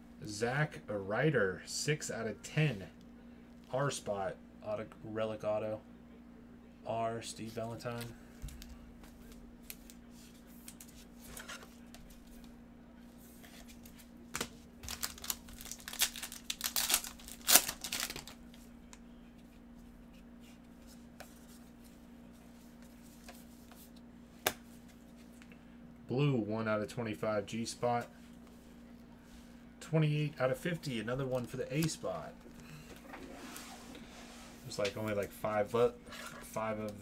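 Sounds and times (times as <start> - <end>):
low steady hum: 0.0 - 37.0
plastic wrapper tearing and crinkling: 14.4 - 18.4.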